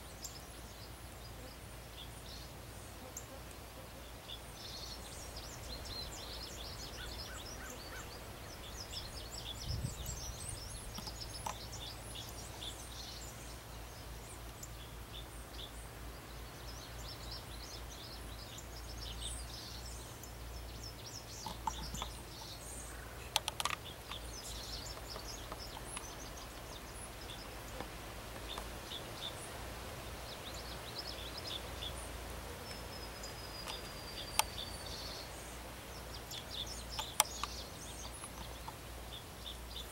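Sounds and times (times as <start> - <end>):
songbirds chirping and singing: 0.0 - 39.9
faint clicks: 10.8 - 11.8, 21.3 - 28.8, 33.6 - 34.9, 36.3 - 38.9.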